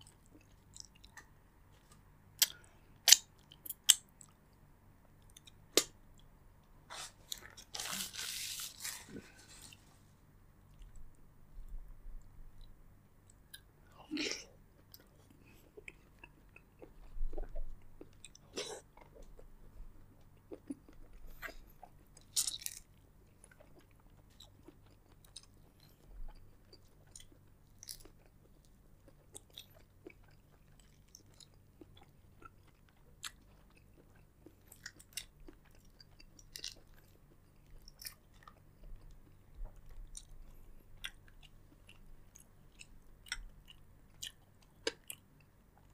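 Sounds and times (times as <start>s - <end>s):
person chewing wet smacks: 23.4s - 45.9s.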